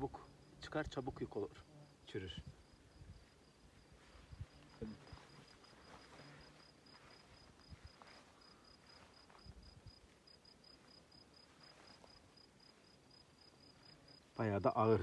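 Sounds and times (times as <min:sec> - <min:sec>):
insect chirping: 0:00.0 - 0:15.0
hands rustling grass: 0:03.7 - 0:13.0.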